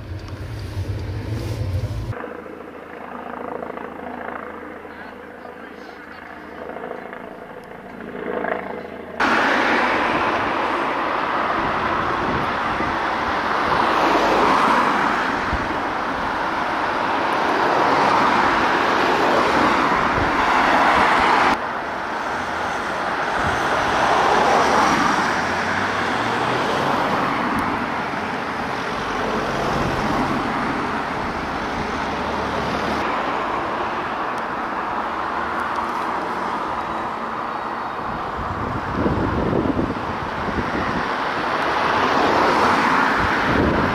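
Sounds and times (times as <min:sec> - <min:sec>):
vehicles driving past: 0:00.0 - 0:02.2, 0:09.2 - 0:43.9.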